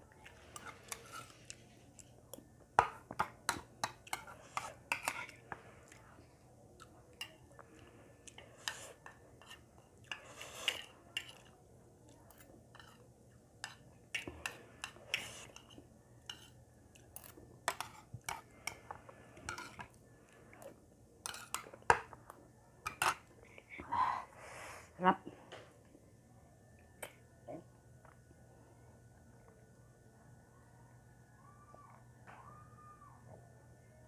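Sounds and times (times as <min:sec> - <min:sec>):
metal spoon scraping and clinking: 0:00.3 - 0:01.6.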